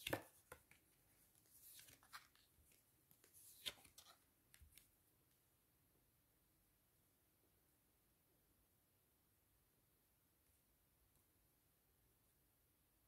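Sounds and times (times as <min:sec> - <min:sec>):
cards rustling and clicking: 0:00.0 - 0:04.9.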